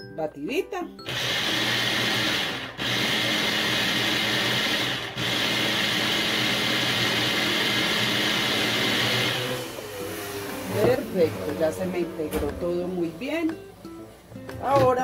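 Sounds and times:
food processor running: 0:01.0 - 0:12.5.

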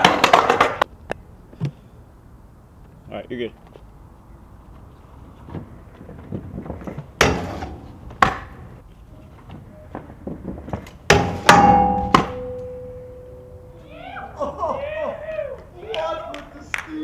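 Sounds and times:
scooter wheels rolling on concrete: 0:00.0 - 0:00.9, 0:02.8 - 0:11.5
hollow metal rail ringing: 0:07.2 - 0:08.7, 0:11.1 - 0:14.1
scooter grinding on metal rail: 0:07.2 - 0:08.8, 0:10.6 - 0:13.8
sharp knocks: 0:11.1 - 0:13.0.

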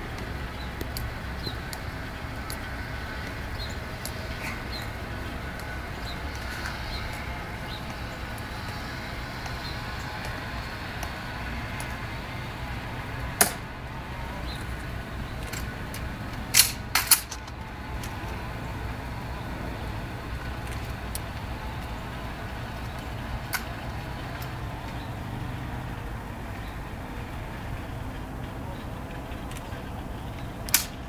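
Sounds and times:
steady low hum: 0:00.0 - 0:31.0
rifle drill slaps and clicks: 0:30.7 - 0:31.0.

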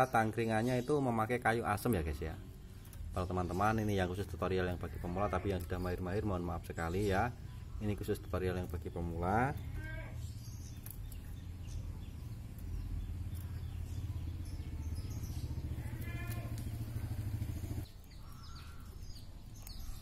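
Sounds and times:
engine idling: 0:08.7 - 0:17.9.

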